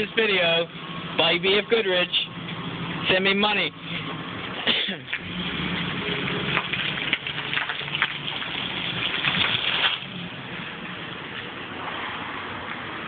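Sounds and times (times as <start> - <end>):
car engine idling: 0.0 - 11.9
loud hiss and crackle: 5.9 - 10.2.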